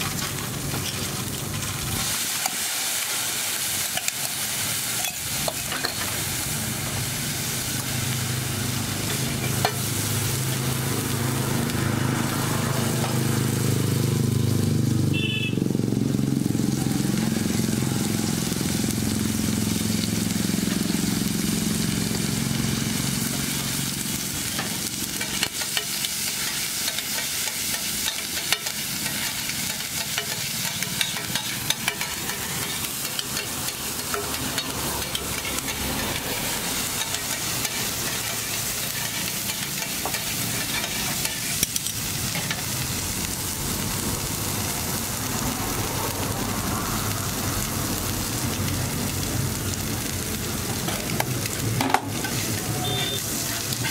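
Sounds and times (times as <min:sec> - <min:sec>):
vegetables sizzling in oil: 0:00.0 - 0:53.9
spatula scraping on griddle: 0:23.1 - 0:42.8, 0:50.8 - 0:53.9.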